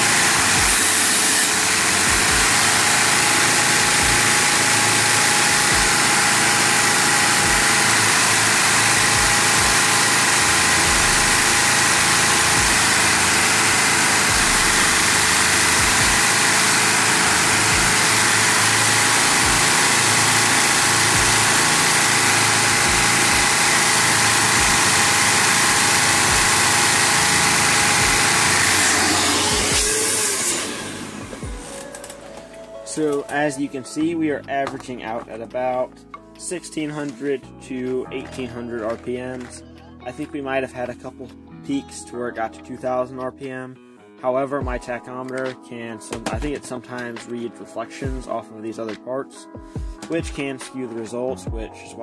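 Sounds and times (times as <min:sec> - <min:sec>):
toy vacuum engine whirring: 0:00.0 - 0:33.0.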